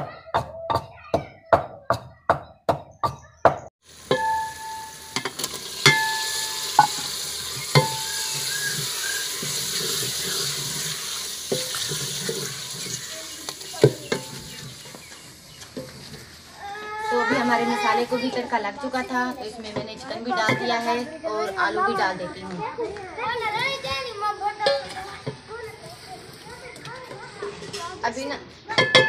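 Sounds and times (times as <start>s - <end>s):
chicken sizzling in pot: 3.8s - 22.3s, 23.4s - 29.0s
metal spoon clanking on pot: 4.1s - 8.4s, 9.4s - 15.0s, 24.6s - 25.4s, 28.7s - 29.0s.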